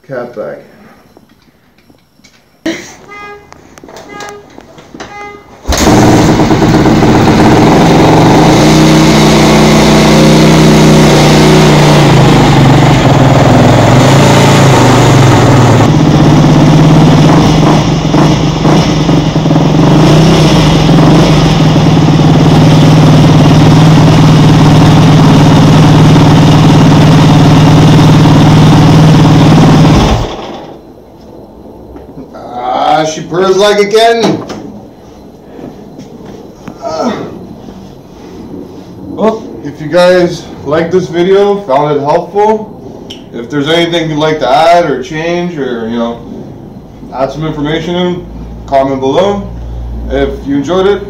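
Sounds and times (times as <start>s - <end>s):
motorcycle engine running: 5.2s - 30.8s.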